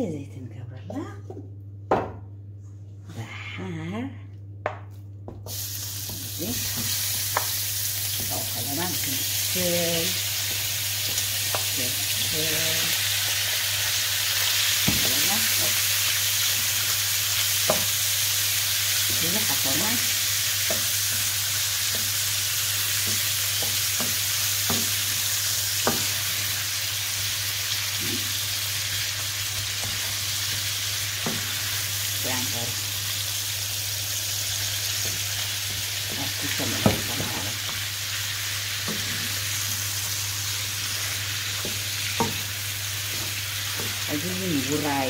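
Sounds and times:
meat sizzling in a frying pan: 0:05.5 - 0:45.0
spatula knocking and scraping pan: 0:20.6 - 0:26.4, 0:31.2 - 0:31.6, 0:41.0 - 0:44.1.

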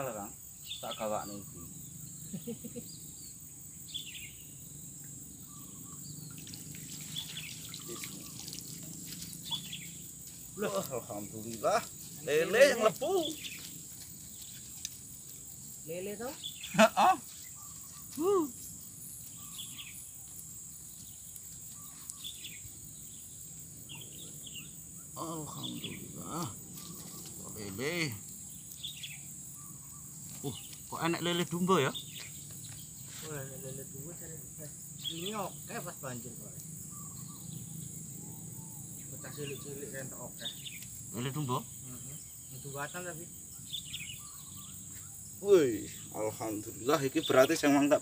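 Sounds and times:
crickets droning: 0:00.0 - 0:48.0
bird chirps: 0:00.6 - 0:33.8, 0:34.9 - 0:35.9, 0:36.8 - 0:48.0
high bird chirps: 0:05.5 - 0:10.0, 0:43.6 - 0:45.1.

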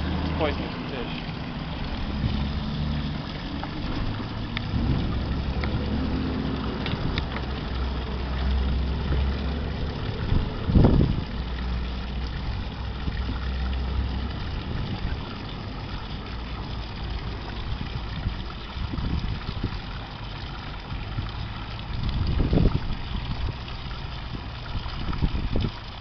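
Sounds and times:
boat engine idling: 0:00.0 - 0:18.6
water stream splashing: 0:00.0 - 0:26.0.

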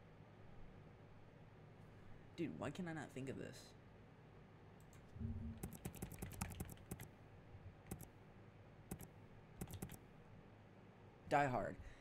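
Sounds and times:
faint keyboard typing: 0:04.8 - 0:07.2, 0:07.9 - 0:08.2, 0:08.9 - 0:10.1.

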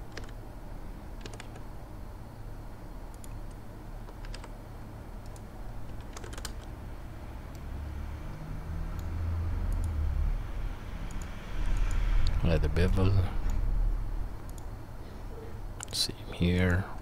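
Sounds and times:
keyboard and mouse clicks: 0:00.0 - 0:00.4, 0:01.2 - 0:01.7, 0:03.1 - 0:04.6, 0:05.2 - 0:06.7, 0:09.7 - 0:10.0, 0:11.1 - 0:13.6, 0:14.4 - 0:14.7, 0:15.8 - 0:16.0
low hum: 0:00.0 - 0:17.0.

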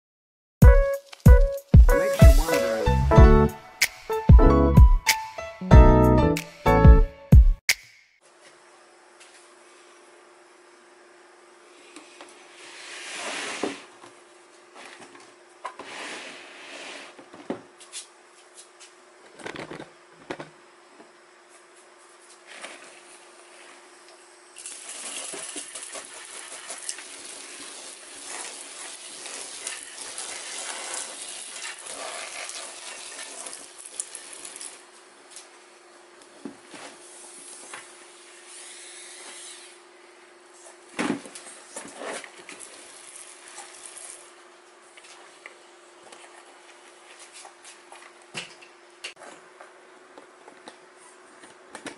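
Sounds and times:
water spraying onto bark chips: 0:24.6 - 0:34.8, 0:42.6 - 0:44.3.

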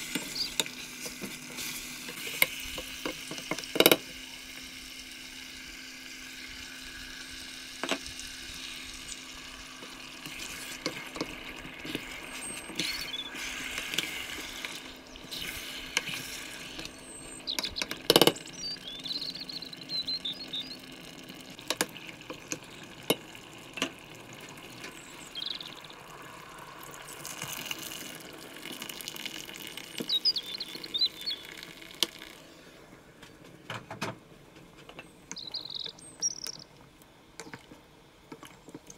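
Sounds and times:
chicken sizzling in a pot: 0:00.0 - 0:17.5, 0:18.7 - 0:32.5
liquid pouring into pot: 0:20.8 - 0:32.4.

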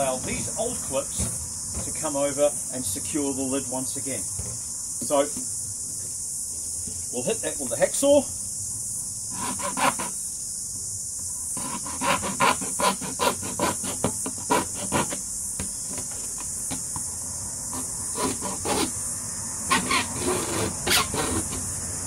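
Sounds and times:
hacksaw rasping through plastic: 0:09.3 - 0:10.2, 0:11.6 - 0:16.8, 0:17.7 - 0:19.0, 0:19.7 - 0:21.7.

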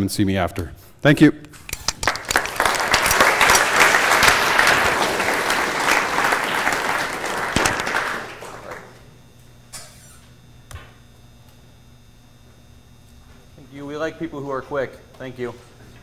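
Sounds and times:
audience applauding: 0:01.8 - 0:09.1.

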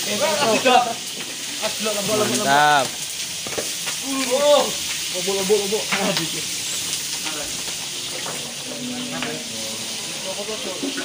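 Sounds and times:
voices in the background: 0:00.0 - 0:03.2, 0:03.9 - 0:11.0
steady hiss: 0:00.0 - 0:11.0.

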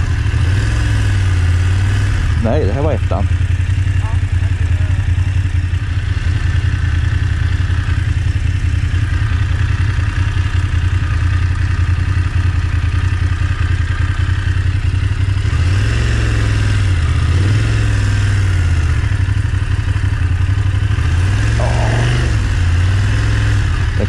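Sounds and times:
motorcycle engine at low revs: 0:00.0 - 0:24.0.

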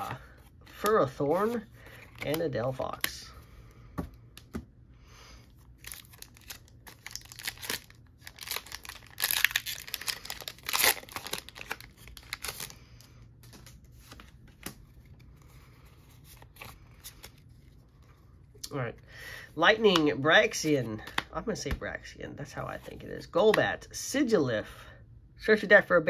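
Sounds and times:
foil wrapper tearing and crinkling: 0:05.8 - 0:12.8.

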